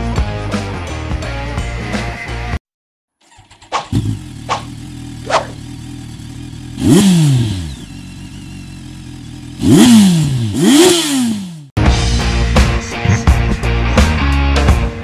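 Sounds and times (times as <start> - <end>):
engine idling and revving: 3.3 - 11.8
short sharp swishes: 3.7 - 5.6.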